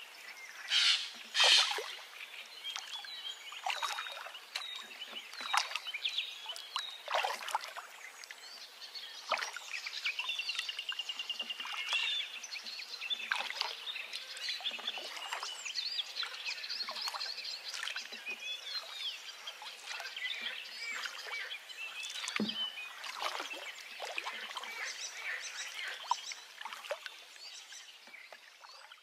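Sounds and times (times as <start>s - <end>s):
songbirds chirping and singing: 0.0s - 29.0s.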